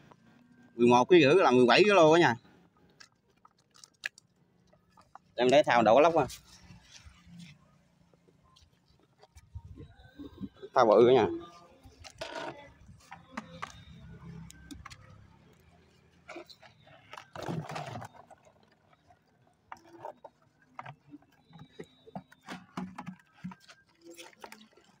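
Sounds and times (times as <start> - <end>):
fish thrashing: 2.7 - 5.7, 11.4 - 25.0.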